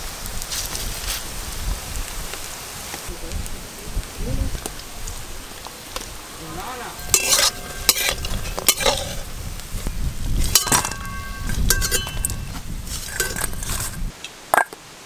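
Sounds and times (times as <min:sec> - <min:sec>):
oil sizzling: 0:00.0 - 0:14.7
metal spatula scraping in a wok: 0:06.2 - 0:14.1
metallic clinks in steel bowl: 0:07.0 - 0:09.2, 0:10.5 - 0:13.8.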